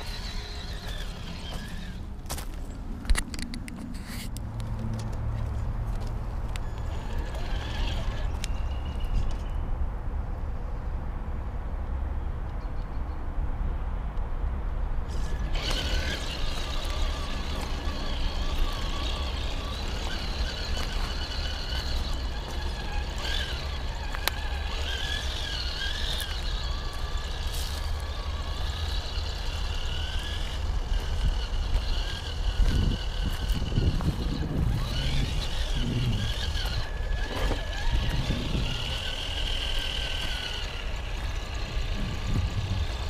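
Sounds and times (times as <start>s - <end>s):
toy car motor whining: 0.0s - 2.1s, 6.5s - 9.5s, 15.1s - 43.0s.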